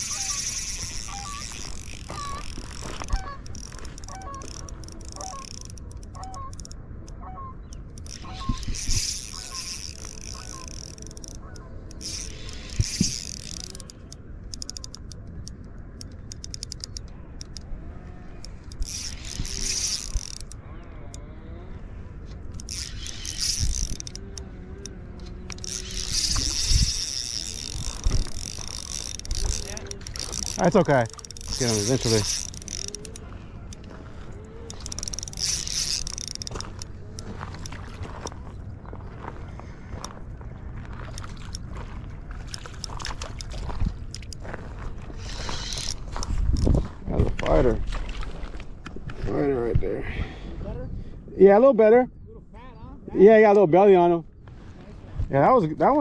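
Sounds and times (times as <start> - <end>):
fishing reel clicking whir: 0.0 - 38.7, 41.0 - 46.9
geese honking: 6.2 - 6.6, 7.2 - 7.6.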